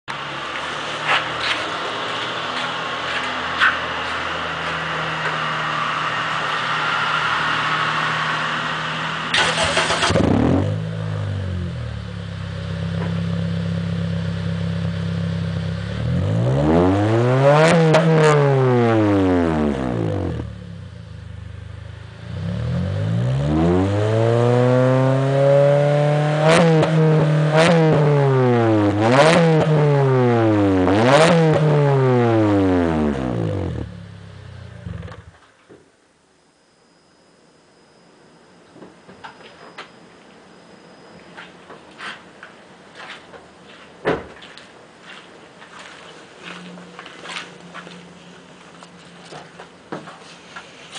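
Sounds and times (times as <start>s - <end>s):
car engine idling and revving: 0.1s - 35.4s, 45.0s - 50.2s.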